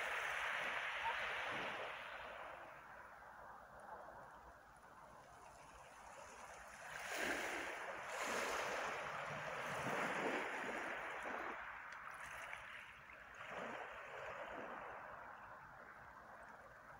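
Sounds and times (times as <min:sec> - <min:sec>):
waves washing over pebbles: 0:05.9 - 0:15.3.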